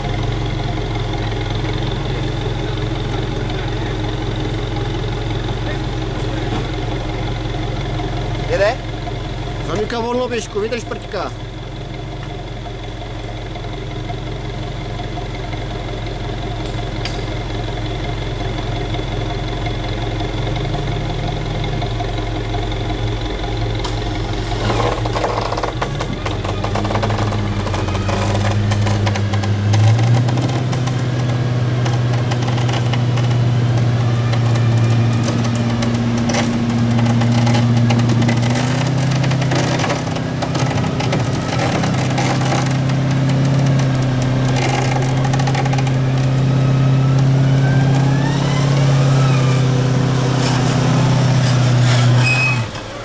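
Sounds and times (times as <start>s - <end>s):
engine running hard: 0.0s - 53.0s
rising whine: 0.0s - 53.0s.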